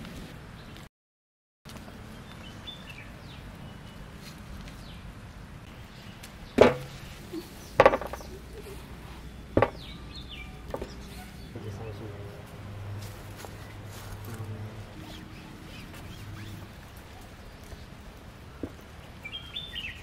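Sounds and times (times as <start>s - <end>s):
knocks on a steel plate: 6.6s - 7.0s.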